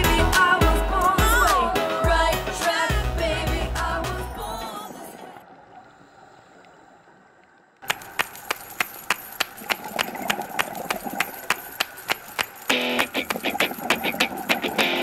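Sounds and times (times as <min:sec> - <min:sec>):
background music: 0:00.0 - 0:04.8
crisp percussion beat: 0:07.9 - 0:15.0.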